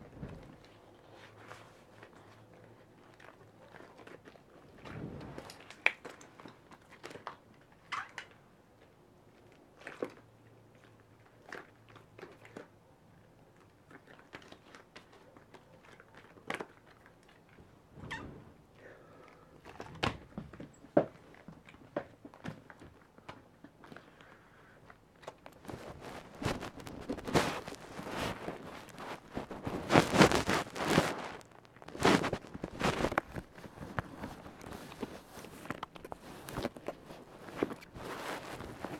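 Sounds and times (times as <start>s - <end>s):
rustling and handling noises: 0.0s - 38.9s
rubber gloves rubbing on skin: 25.6s - 38.9s.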